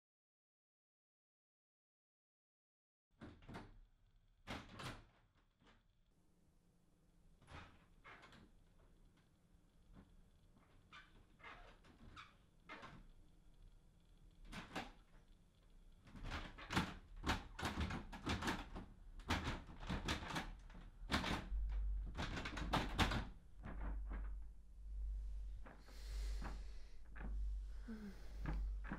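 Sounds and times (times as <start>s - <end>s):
door rattling and knocking: 16.1s - 24.4s
low rumble: 23.5s - 28.9s.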